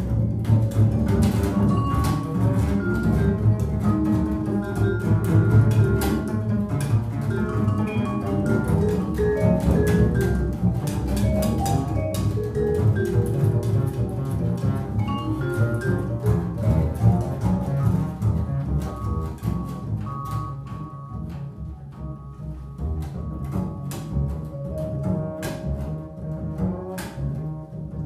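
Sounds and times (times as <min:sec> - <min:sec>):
double basses playing: 0:00.0 - 0:28.0
mallet keyboard high notes: 0:00.4 - 0:13.9, 0:14.9 - 0:17.2.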